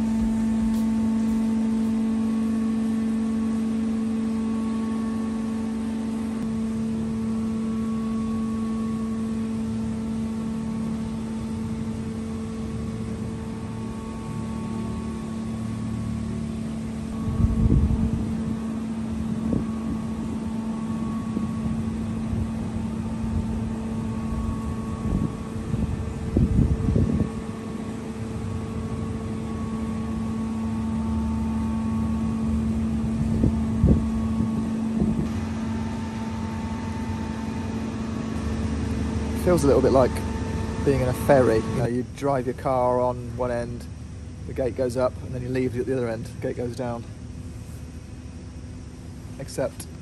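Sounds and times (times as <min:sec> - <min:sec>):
low mechanical hum: 0:00.0 - 0:50.0
wind gusting on microphone: 0:17.1 - 0:29.7, 0:32.9 - 0:36.2.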